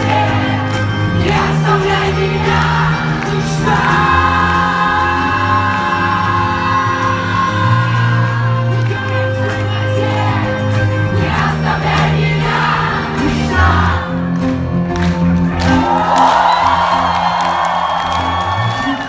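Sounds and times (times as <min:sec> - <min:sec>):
man singing lead: 0:00.0 - 0:10.6
audience singing along: 0:00.0 - 0:14.7
electric bass guitar: 0:00.0 - 0:19.0.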